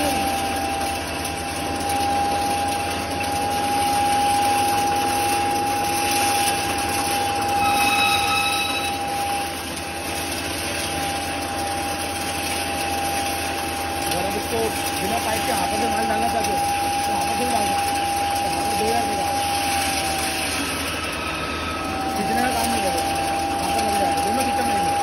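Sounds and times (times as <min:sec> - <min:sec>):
grinder motor whining: 0:00.0 - 0:25.0
high whistle: 0:07.3 - 0:09.5.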